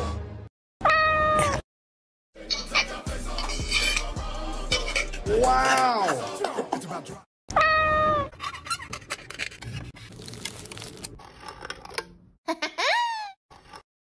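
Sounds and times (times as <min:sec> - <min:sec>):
foil seal peeling: 0:10.0 - 0:11.2.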